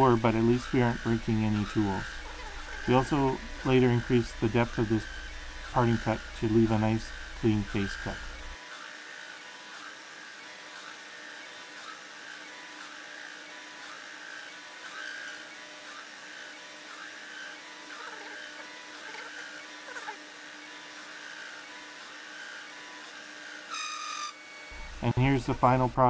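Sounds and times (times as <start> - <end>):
lathe whine and hum: 0.0 - 26.0.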